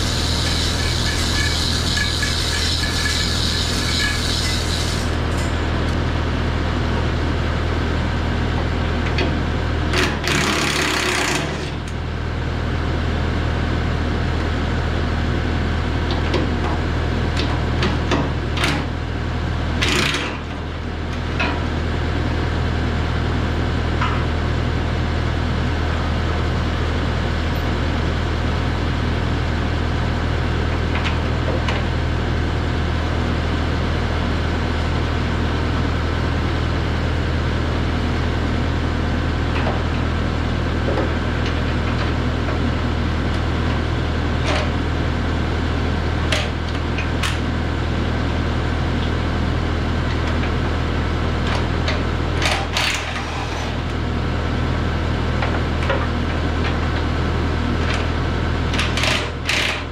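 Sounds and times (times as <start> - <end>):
machine hum: 0.0 - 10.4.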